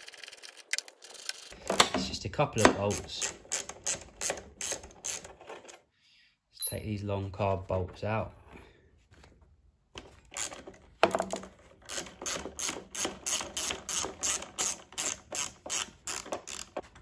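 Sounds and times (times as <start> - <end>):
socket ratchet clicking: 2.6 - 5.3, 11.9 - 16.8.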